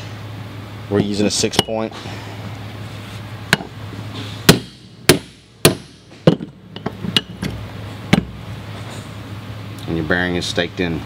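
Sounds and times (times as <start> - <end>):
hammer striking metal tool: 4.5 - 7.4.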